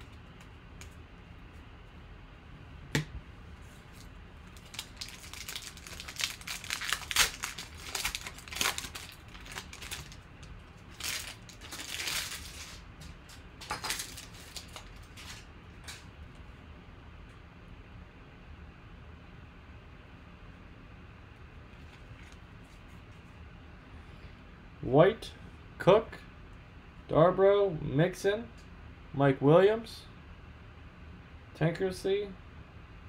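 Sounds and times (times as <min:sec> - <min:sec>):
foil wrapper crinkling and tearing: 0:04.0 - 0:16.0.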